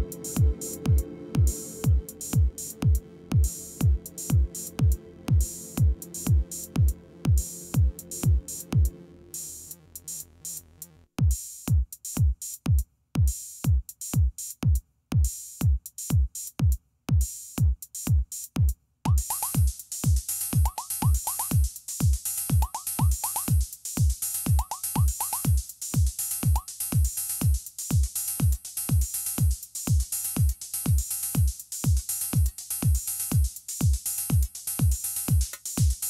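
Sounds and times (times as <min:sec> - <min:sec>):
techno kick drum: 0:00.0 - 0:08.9, 0:11.2 - 0:36.0
low bass line: 0:00.0 - 0:10.3
hi-hat ticks: 0:13.3 - 0:36.0.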